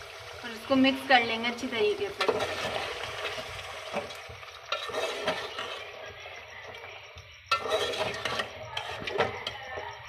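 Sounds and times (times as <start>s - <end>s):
metal spoon scraping metal pot: 2.2s - 3.4s, 4.6s - 6.1s, 7.5s - 9.9s.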